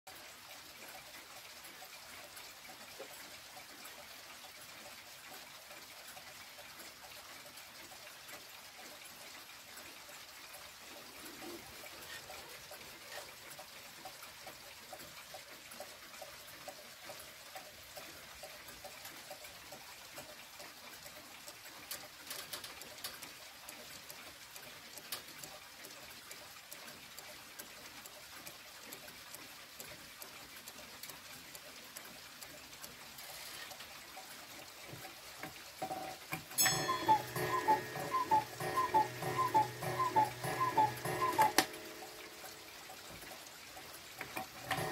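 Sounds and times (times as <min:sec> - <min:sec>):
clock ticking: 0:00.1 - 0:44.9
cuckoo clock call: 0:00.1 - 0:44.9.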